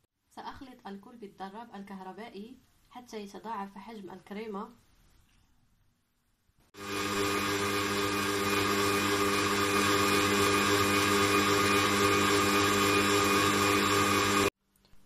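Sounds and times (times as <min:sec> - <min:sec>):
electric mixer whirring: 0:06.8 - 0:14.5.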